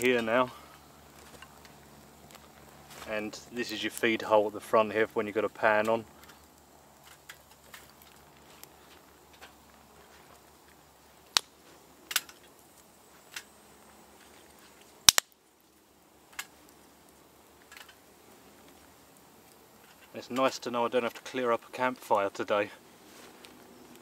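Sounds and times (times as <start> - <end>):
wood fire crackling and popping: 0.0 - 24.0.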